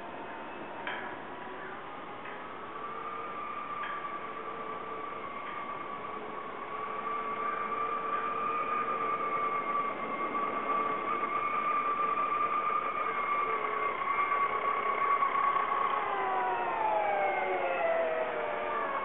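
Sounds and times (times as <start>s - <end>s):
electric bike motor whining: 1.4s - 19.0s.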